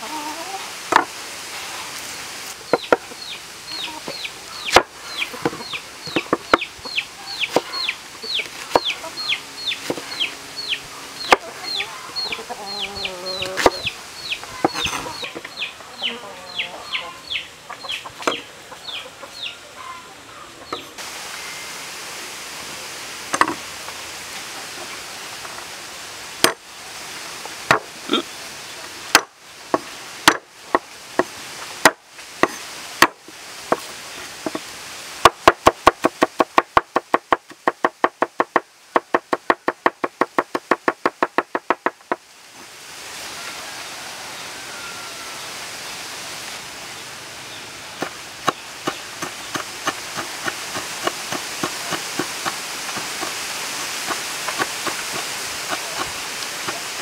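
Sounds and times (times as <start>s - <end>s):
chick peeping: 0.0s - 0.7s, 2.7s - 21.0s.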